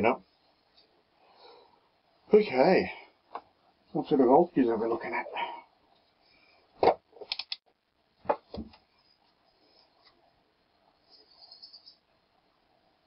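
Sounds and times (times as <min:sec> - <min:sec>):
small clicks: 0:07.2 - 0:07.7.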